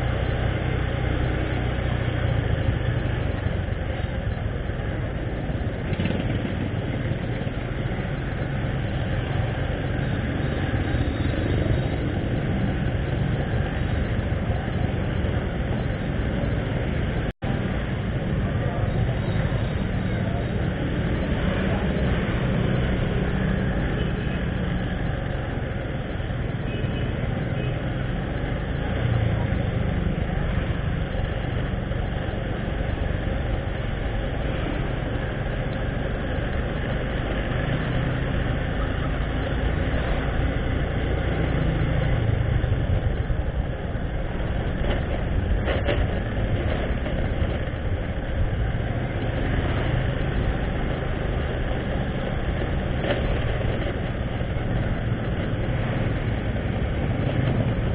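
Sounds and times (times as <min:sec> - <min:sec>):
motorcycle engine drone: 0:00.0 - 0:57.9
other motorbike engines: 0:00.0 - 0:57.9
wind rumble: 0:28.2 - 0:57.9.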